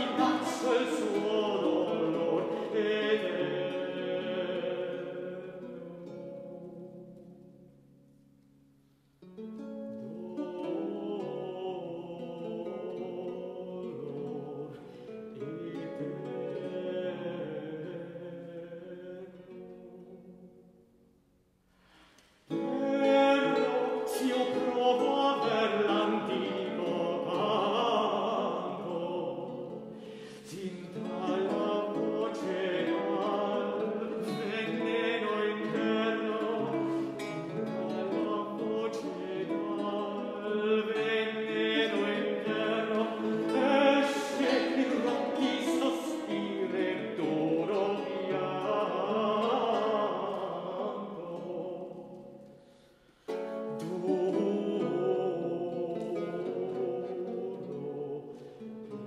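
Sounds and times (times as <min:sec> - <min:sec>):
tenor singing: 0:00.0 - 0:07.7, 0:09.6 - 0:20.8, 0:22.1 - 0:59.0
lute accompaniment: 0:00.0 - 0:08.0, 0:22.2 - 0:59.0.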